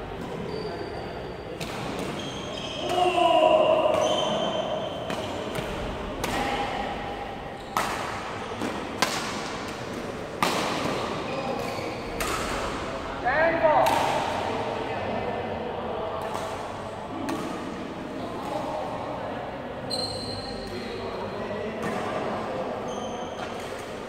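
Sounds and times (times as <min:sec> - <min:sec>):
sneakers squeaking on court: 0:00.2 - 0:03.0, 0:03.9 - 0:05.6, 0:19.9 - 0:20.8, 0:22.8 - 0:23.7
rackets hitting shuttlecock: 0:01.6 - 0:02.2, 0:03.8 - 0:07.0, 0:07.7 - 0:12.9, 0:13.8 - 0:14.5.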